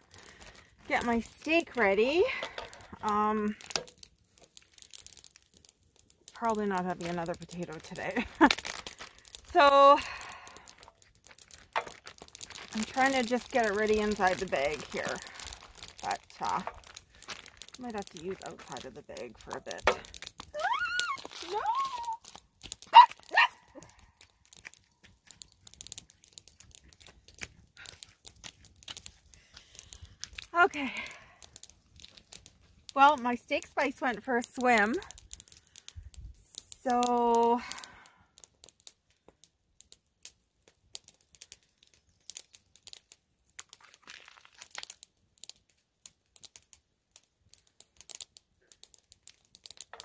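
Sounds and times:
small items clicking: 0.0 - 50.0
plastic zip-lock bag crinkling: 7.8 - 9.6, 10.6 - 30.6
person crying out: 20.6 - 22.2.

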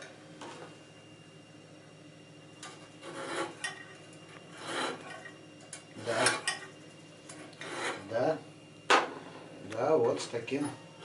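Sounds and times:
blade sharpening on stone: 4.5 - 5.1.

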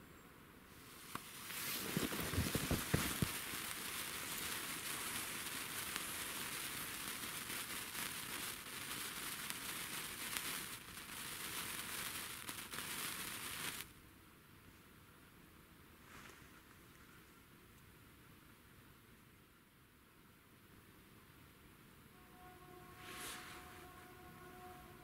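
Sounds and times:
sparkler fizzing and crackling: 0.7 - 13.9, 23.0 - 25.0.

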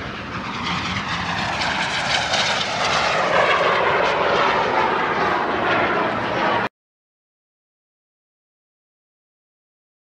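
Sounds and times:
jet engine rushing: 0.0 - 6.7.

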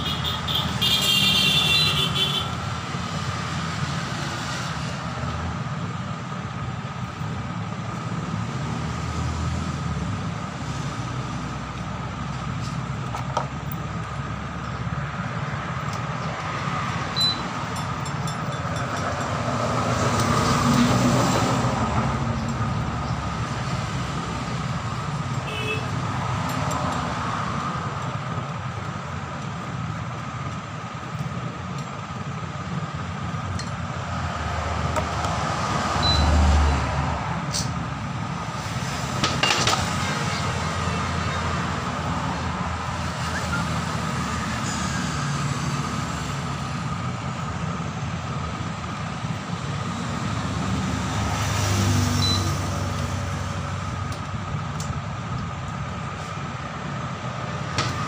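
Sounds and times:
vehicle traffic hum: 0.0 - 58.0
vehicle passing by: 19.2 - 25.0, 34.1 - 37.5, 49.8 - 54.0.

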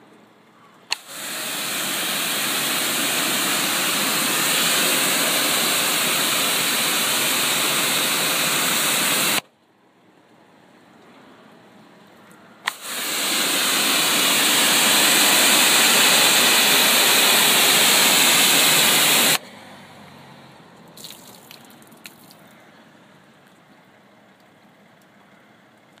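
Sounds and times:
hose nozzle click: 0.9 - 1.4, 12.7 - 13.3
water spattering: 0.9 - 9.4, 21.0 - 22.5
water spray hissing on car: 0.9 - 9.4, 12.7 - 19.4.

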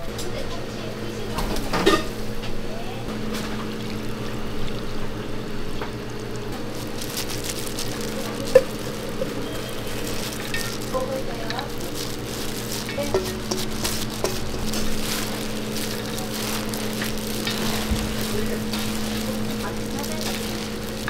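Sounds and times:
kitchen hum: 0.0 - 21.0
wet noodles slapping into bowl: 11.9 - 19.6.

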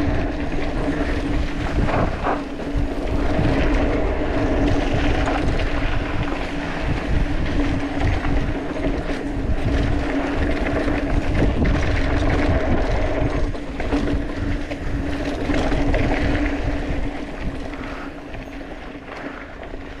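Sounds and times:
tyres rumbling over dirt and stones: 0.0 - 20.0
wind buffeting microphone: 0.0 - 20.0.

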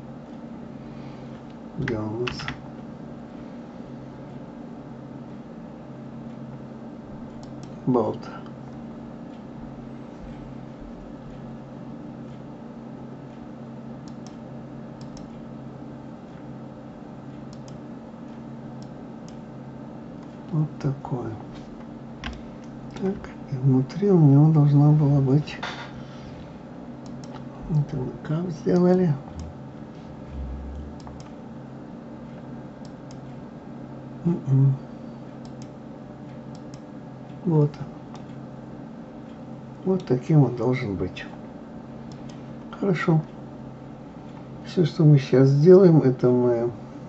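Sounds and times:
low electrical hum: 0.0 - 47.0
computer mouse clicking: 7.3 - 7.8, 14.0 - 14.4, 15.0 - 15.3, 17.5 - 17.8, 27.0 - 27.5, 30.3 - 31.4, 35.4 - 35.8, 36.5 - 36.9, 42.1 - 42.4
man humming: 29.2 - 31.3.

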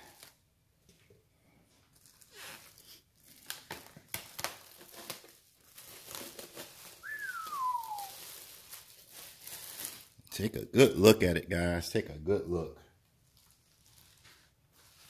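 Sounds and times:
plastic wrap crinkling: 1.6 - 11.2, 12.9 - 15.0.

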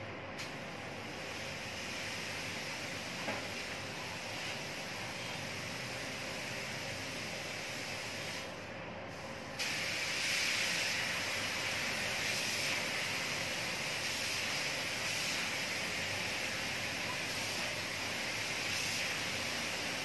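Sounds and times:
paint spray gun hissing: 9.6 - 20.0.

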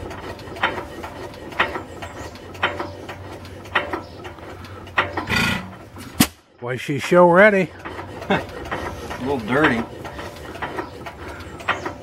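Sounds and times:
stationary engine exhaust bark: 0.0 - 6.2.

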